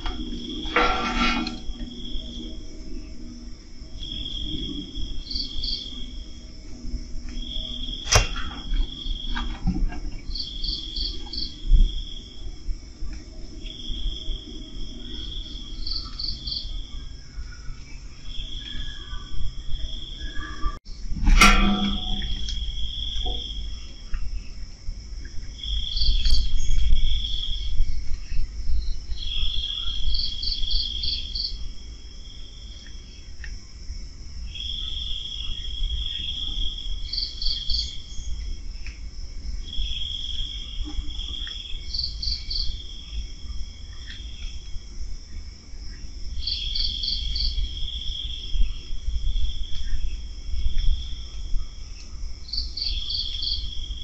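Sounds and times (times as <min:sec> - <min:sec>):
insect trill with quick chirps: 0:00.0 - 0:54.0
night insects chirping: 0:00.0 - 0:54.0
low rumble: 0:20.4 - 0:24.0.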